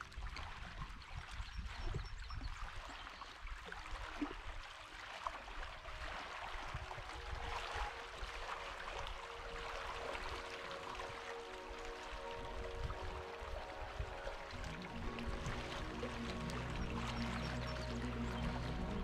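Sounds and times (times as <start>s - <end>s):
lake water trickling and lapping: 0.0s - 19.0s
low rumble: 14.5s - 19.0s.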